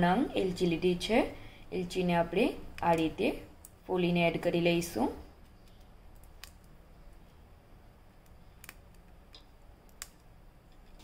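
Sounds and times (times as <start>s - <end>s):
faint room hum: 0.0s - 11.0s
cardamom pods clicking open: 2.7s - 3.8s, 5.4s - 7.4s, 8.2s - 11.0s.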